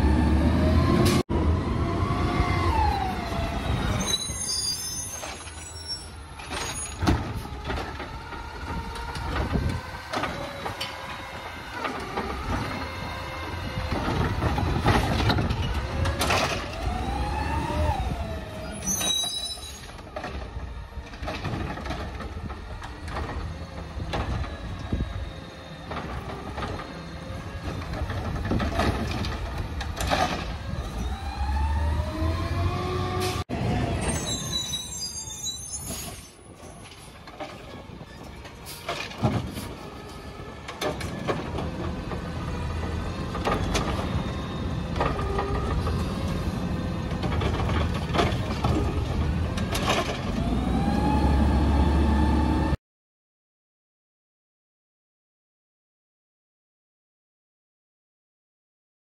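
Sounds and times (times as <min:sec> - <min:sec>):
short high squeals: 0:04.0 - 0:07.0, 0:18.6 - 0:19.9, 0:34.0 - 0:36.5.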